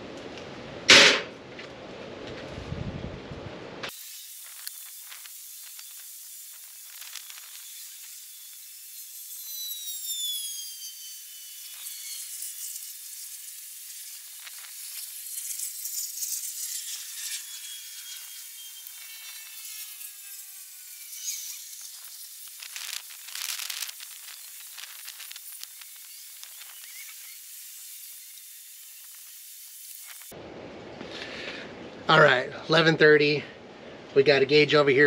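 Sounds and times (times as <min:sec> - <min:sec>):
thin high hiss: 0:03.9 - 0:09.4, 0:21.1 - 0:30.3
falling whistle-like tones: 0:09.4 - 0:11.5.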